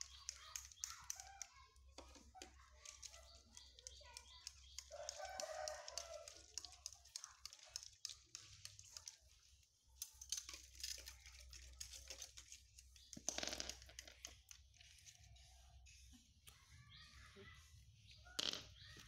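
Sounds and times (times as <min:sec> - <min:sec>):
monkeys clicking and rustling: 0:00.0 - 0:19.0.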